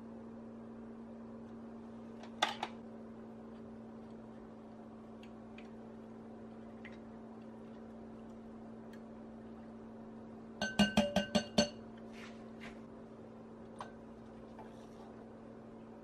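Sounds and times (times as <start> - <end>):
steady low hum: 0.0 - 16.0
metal beaters clacking on glass bowl: 10.6 - 11.8.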